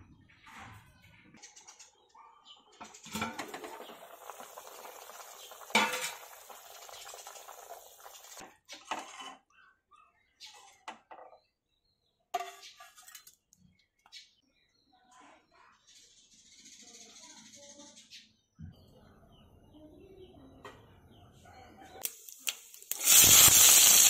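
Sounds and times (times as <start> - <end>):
water boiling: 3.0 - 8.5, 22.0 - 24.0
pot and lid clattering: 3.0 - 9.2.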